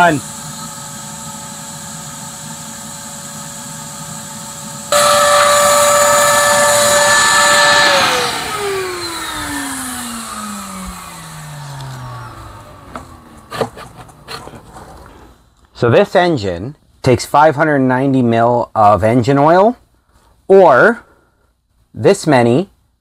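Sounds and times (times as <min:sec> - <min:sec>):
motor winding down: 0:00.0 - 0:15.1
hissing air rush: 0:00.0 - 0:15.4
motor whining: 0:04.9 - 0:15.3.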